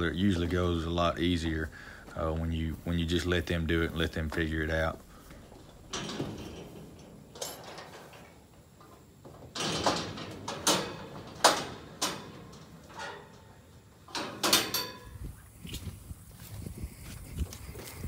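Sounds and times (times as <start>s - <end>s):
metal gate clanking and rattling: 3.6s - 15.3s.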